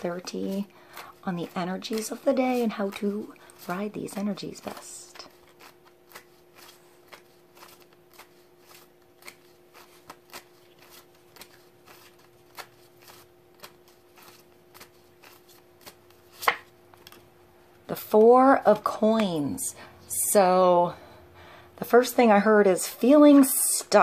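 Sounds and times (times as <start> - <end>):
cards being shuffled: 0.0 - 17.3
faint steady hum: 0.0 - 24.0.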